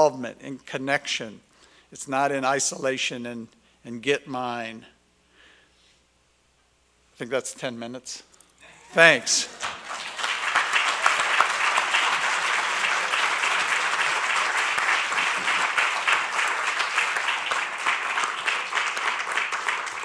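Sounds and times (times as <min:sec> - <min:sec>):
audience applauding: 0:08.9 - 0:20.0.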